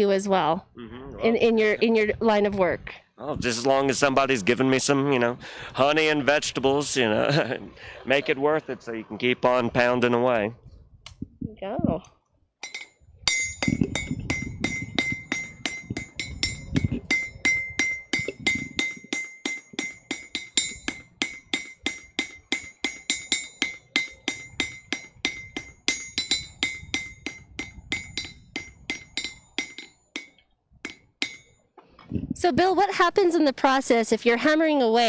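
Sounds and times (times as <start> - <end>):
hammer striking steel on anvil: 12.6 - 31.5.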